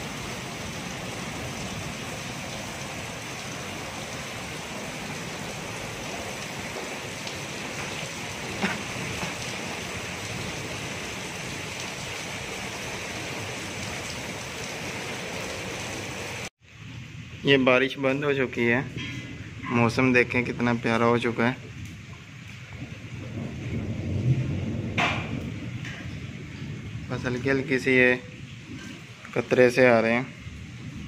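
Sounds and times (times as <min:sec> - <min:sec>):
heavy rain on concrete: 0:00.0 - 0:31.0
knock: 0:25.0 - 0:25.3.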